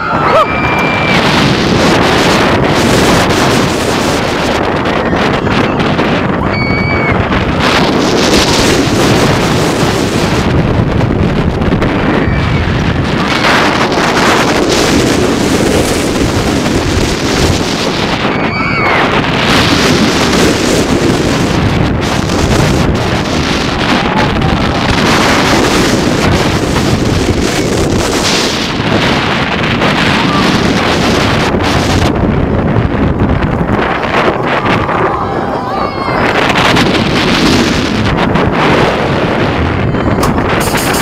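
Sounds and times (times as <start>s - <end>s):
wind rushing over microphone: 0.0s - 41.0s
high squeal: 6.5s - 7.2s.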